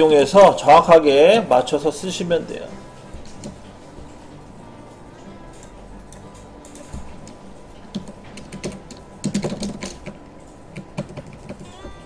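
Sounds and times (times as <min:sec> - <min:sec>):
typing on computer keyboard: 0:07.9 - 0:11.8.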